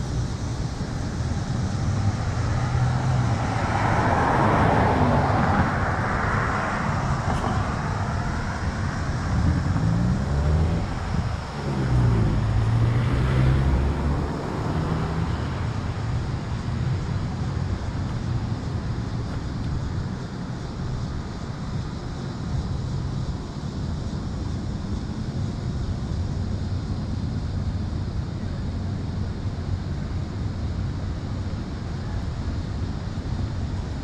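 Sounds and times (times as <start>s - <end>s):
car tyre noise passing: 0.0s - 24.0s
vehicle engine hum passing: 0.0s - 34.0s.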